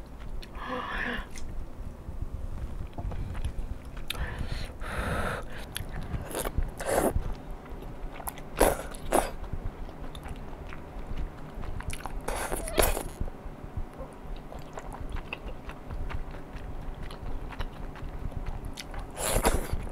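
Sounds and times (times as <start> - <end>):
noodle slurping and chewing: 5.4 - 7.4, 8.1 - 9.4, 10.0 - 13.2, 14.4 - 19.9.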